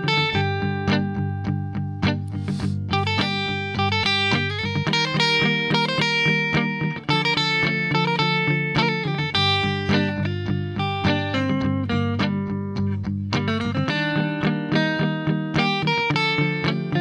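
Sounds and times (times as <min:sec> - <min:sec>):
electric guitar single-note line: 0:00.0 - 0:17.0.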